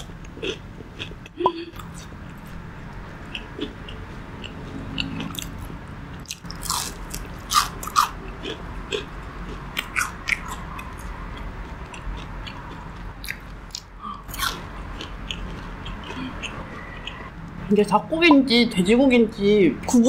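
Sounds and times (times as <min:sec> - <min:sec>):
crunchy food chewing: 0:00.0 - 0:01.2, 0:03.2 - 0:17.3.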